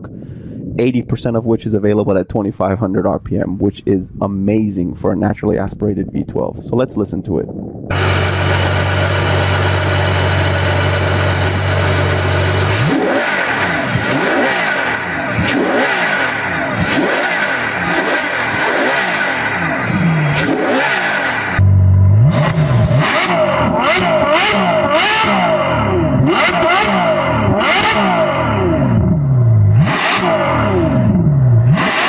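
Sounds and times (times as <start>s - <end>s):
car engine idling and revving: 7.9s - 32.0s.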